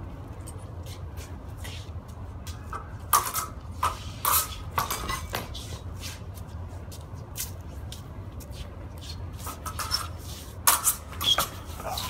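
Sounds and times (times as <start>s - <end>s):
fencing swords clashing: 2.5s - 5.6s, 9.5s - 12.0s.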